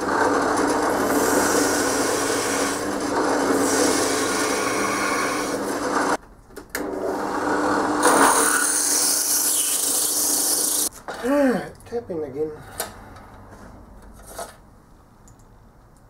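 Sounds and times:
drill press motor hum: 0:00.0 - 0:06.2
drill bit cutting metal: 0:00.8 - 0:06.0.

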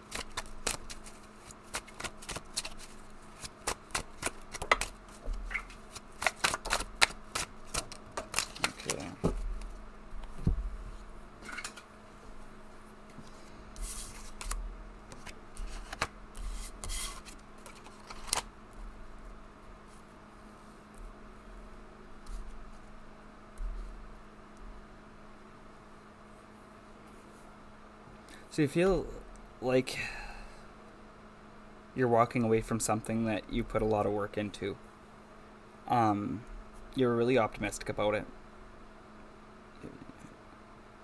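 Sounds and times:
cards being shuffled: 0:00.0 - 0:09.7, 0:13.8 - 0:18.5
cards slapping on a table: 0:03.4 - 0:05.0, 0:05.6 - 0:09.2.

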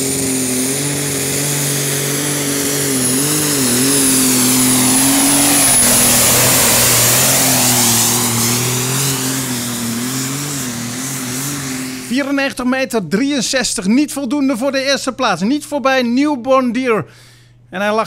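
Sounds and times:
high turbo whistle: 0:00.0 - 0:12.2
diesel tractor engine at full throttle: 0:00.0 - 0:12.3.

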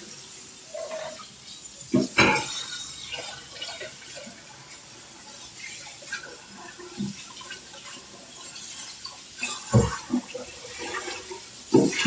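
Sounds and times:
tap running into sink: 0:09.6 - 0:10.3
pan knocking on sink: 0:09.7 - 0:10.0.

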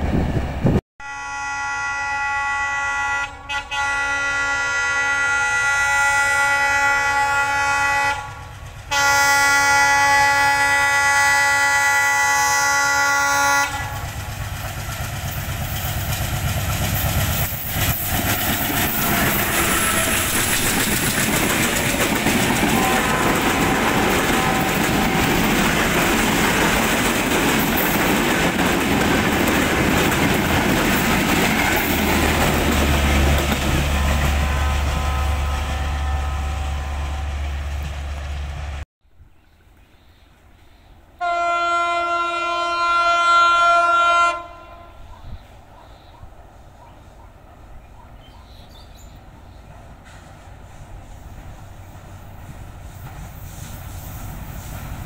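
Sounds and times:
train rumble and wheel clatter: 0:00.0 - 0:00.8, 0:02.5 - 0:38.8, 0:39.5 - 0:55.0
locomotive horn blasts: 0:01.0 - 0:14.0, 0:18.7 - 0:20.6, 0:22.6 - 0:25.6, 0:33.9 - 0:37.8, 0:41.2 - 0:45.1.

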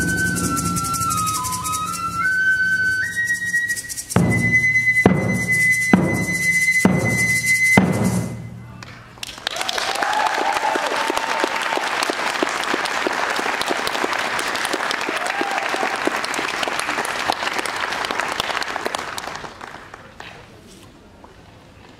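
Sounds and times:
audience cheering: 0:08.7 - 0:19.0
audience applauding: 0:08.8 - 0:20.3.

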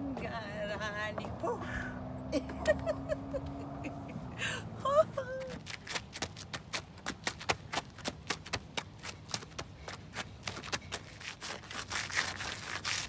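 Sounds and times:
sneakers tapping on asphalt: 0:05.4 - 0:13.0.

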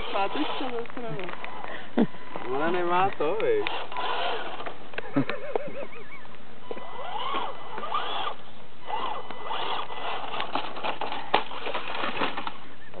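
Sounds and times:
toy truck electric motor whining: 0:00.0 - 0:05.0, 0:06.6 - 0:12.8
clicks and knocks of tumbling truck: 0:09.0 - 0:13.0.

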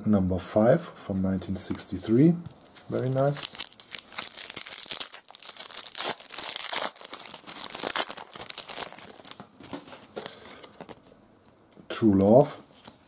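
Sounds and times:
foil wrapper tearing and crinkling: 0:02.9 - 0:09.4.

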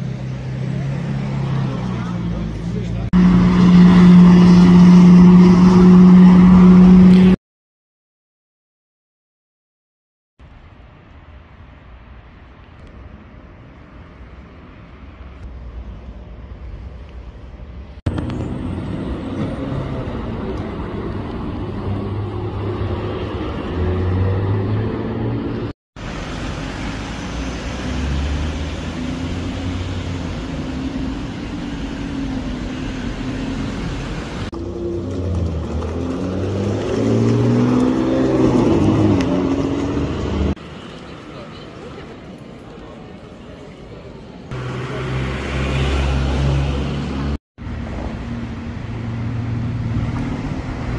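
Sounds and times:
sports car engines accelerating: 0:00.1 - 0:07.4, 0:32.1 - 0:40.6
car driving past: 0:18.1 - 0:40.9, 0:44.5 - 0:50.9.

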